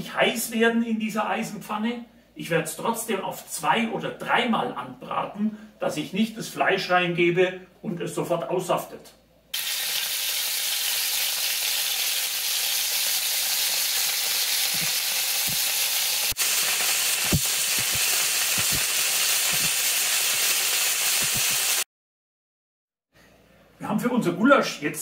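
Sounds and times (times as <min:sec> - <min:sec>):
beef searing in hot oil: 0:09.5 - 0:21.9
oil spits and pops: 0:14.7 - 0:15.7, 0:16.4 - 0:19.8.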